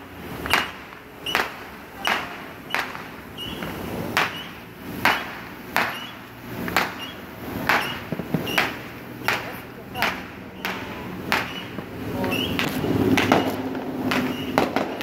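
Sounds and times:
fireworks bangs: 0.0s - 15.0s.

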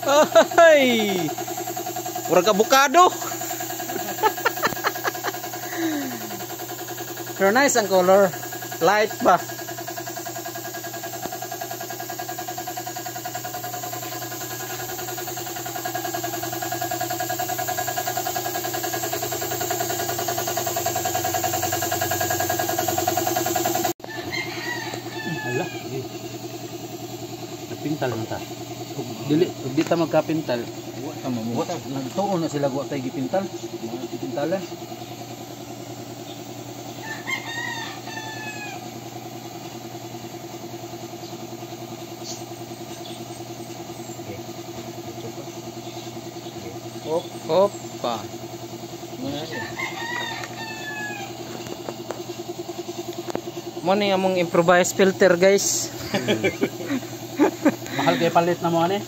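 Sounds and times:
air compressor running: 0.0s - 59.0s
rooster crowing: 4.2s - 6.7s, 24.0s - 26.1s, 36.9s - 39.1s, 49.3s - 51.5s.

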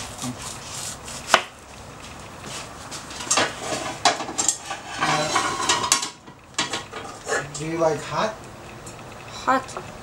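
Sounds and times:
dishes and pans clinking: 3.2s - 7.5s.

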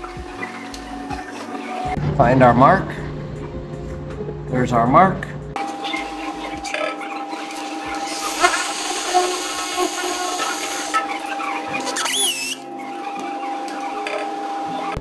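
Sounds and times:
hammer drill drilling concrete: 7.8s - 11.0s.

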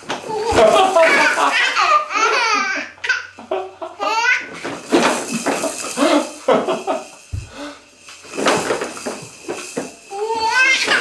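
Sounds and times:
baby laughing: 0.3s - 4.5s
adult laughing: 0.4s - 2.8s.

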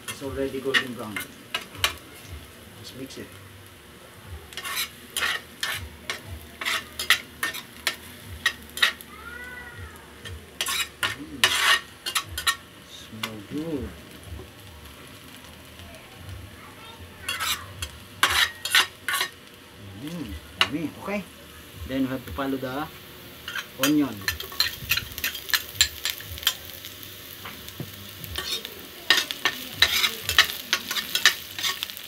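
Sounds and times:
garlic sizzling in hot oil: 0.0s - 32.0s
metal spatula scraping a pan: 4.5s - 9.0s, 10.6s - 12.6s, 17.2s - 19.4s, 23.4s - 26.6s, 28.3s - 32.0s.

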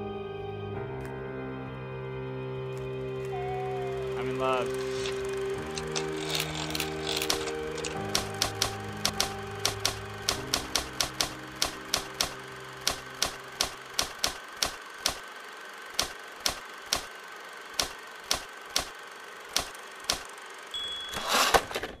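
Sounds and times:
typewriter keystroke clacks: 5.0s - 15.2s, 16.0s - 17.1s, 17.8s - 18.9s
bell-like ding: 20.8s - 21.2s.

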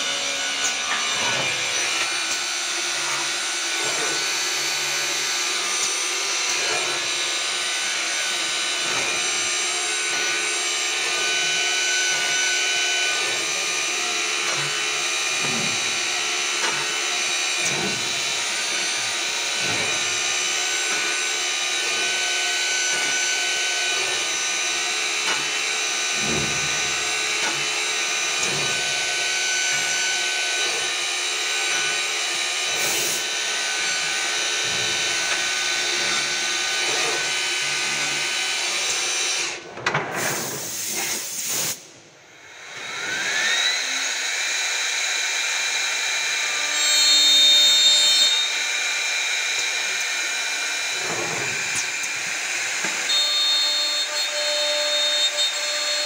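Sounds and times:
spindle motors whining: 0.0s - 39.8s.

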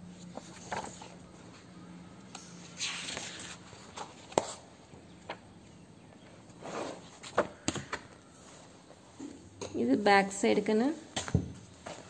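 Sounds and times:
book pages flipping: 0.2s - 1.7s, 2.4s - 5.4s, 6.4s - 9.0s, 11.6s - 12.0s.

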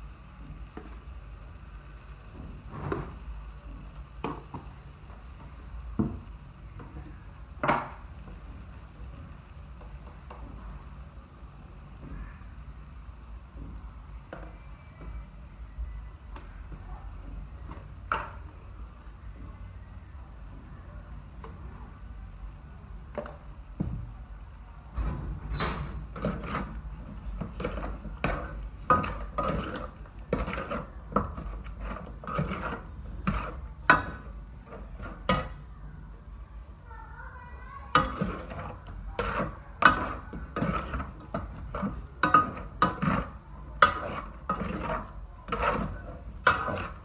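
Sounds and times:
faint low background hum: 0.0s - 47.0s
metal ladle scraping a metal pot: 25.9s - 35.5s, 38.0s - 47.0s.

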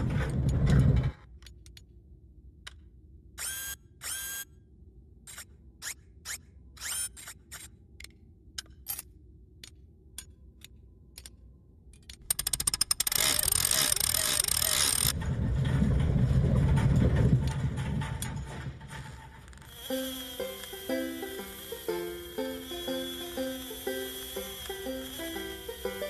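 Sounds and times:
handcar machinery clanking and clicking: 12.3s - 19.7s.

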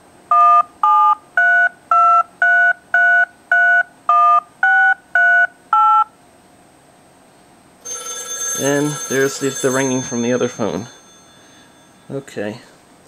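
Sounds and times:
touch-tone dialing beeps: 0.3s - 6.1s.

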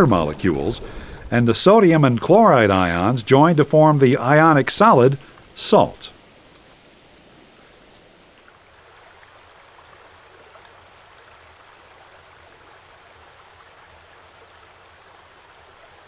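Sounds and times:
low hum: 0.0s - 8.5s
faint steady hiss: 0.0s - 16.0s.

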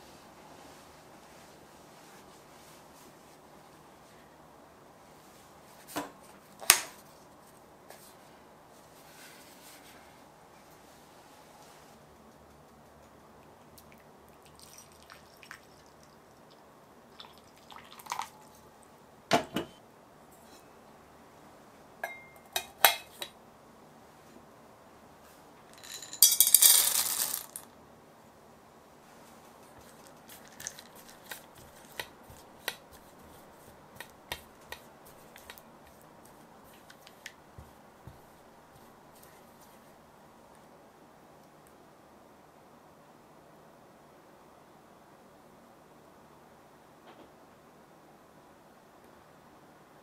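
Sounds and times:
water drips and splashes: 13.8s - 18.6s
water pouring into glass bowl: 14.4s - 16.4s, 17.2s - 18.5s
spatula tapping glass bowl: 22.0s - 23.0s.

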